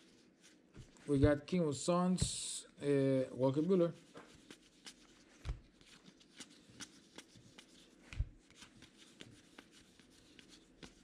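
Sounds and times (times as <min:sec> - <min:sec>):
trading cards flipped by hand: 0:04.2 - 0:09.7.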